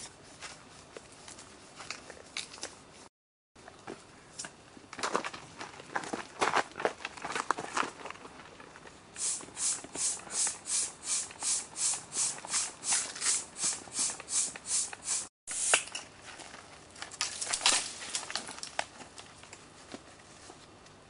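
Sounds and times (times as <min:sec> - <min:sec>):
gritty scuffing strokes: 0:09.2 - 0:16.5.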